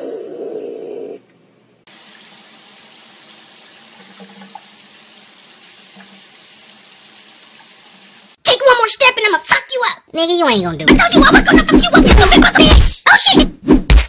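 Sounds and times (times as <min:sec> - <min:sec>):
shower spray hissing: 0:01.9 - 0:08.4.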